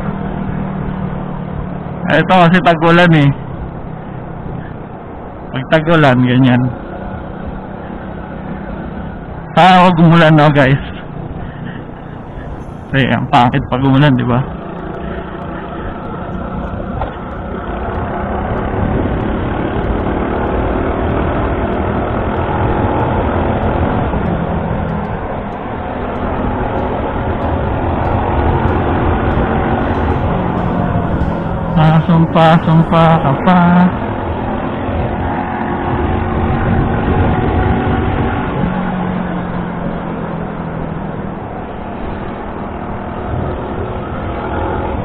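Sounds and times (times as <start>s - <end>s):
road and wind noise: 0.0s - 45.0s
motorcycle engine running: 10.9s - 37.4s.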